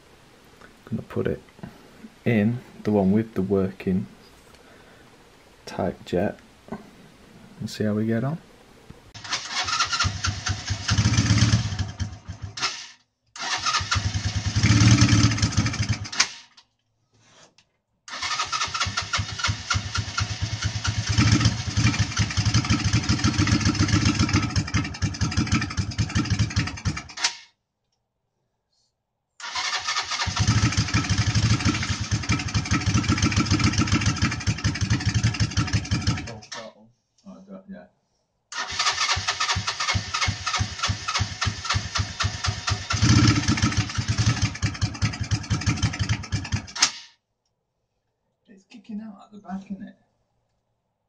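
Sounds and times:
motorcycle engine cranking on starter: 0:09.2 - 0:16.6, 0:18.1 - 0:27.5, 0:29.4 - 0:36.7, 0:38.5 - 0:47.1.

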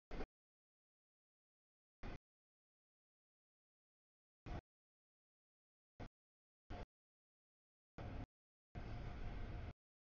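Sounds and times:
faint steady whine: 0:02.0 - 0:02.2, 0:04.4 - 0:04.7, 0:06.0 - 0:06.9, 0:08.0 - 0:09.8.

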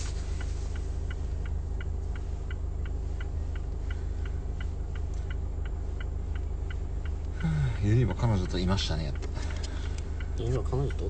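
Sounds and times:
car indicator ticking: 0:00.0 - 0:11.0
car low rumble: 0:00.0 - 0:11.0.

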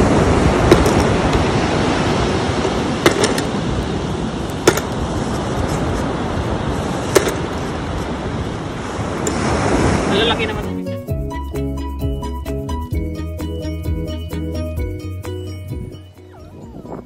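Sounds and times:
wind on microphone: 0:00.0 - 0:10.8, 0:15.7 - 0:17.0
surf rushing: 0:00.0 - 0:11.0.

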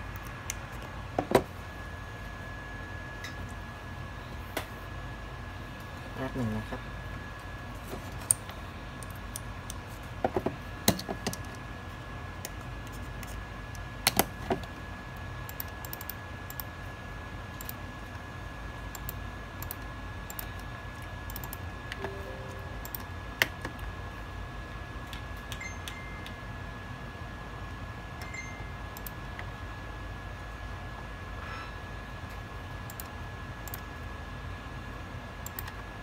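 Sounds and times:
computer mouse and keyboard clicks: 0:15.5 - 0:16.7, 0:18.9 - 0:21.6
faint high whine: 0:21.9 - 0:23.4
low hum: 0:22.0 - 0:23.4.

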